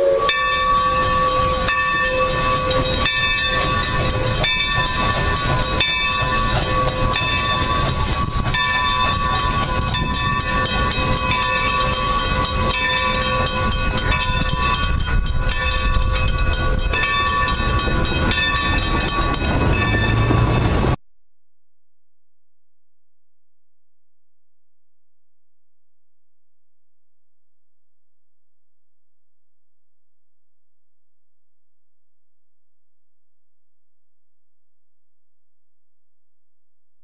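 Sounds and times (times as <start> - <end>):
low train rumble: 0.0 - 21.0
bell ringing: 0.2 - 21.0
train wheels clicking on rail joints: 0.4 - 21.0.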